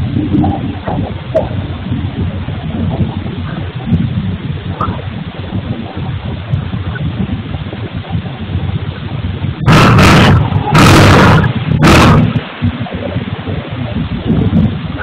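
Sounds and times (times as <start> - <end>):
machinery rumble: 0.0 - 15.0
loud harsh cutting bursts: 9.7 - 12.4.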